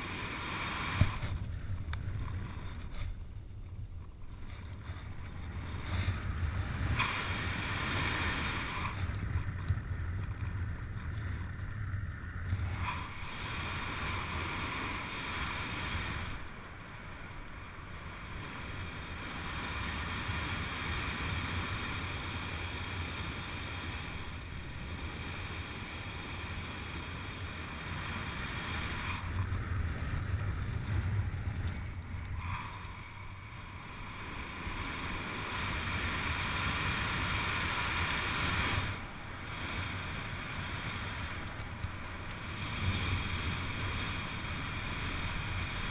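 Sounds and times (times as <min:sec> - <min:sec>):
wind rushing over microphone: 0:00.0 - 0:45.9.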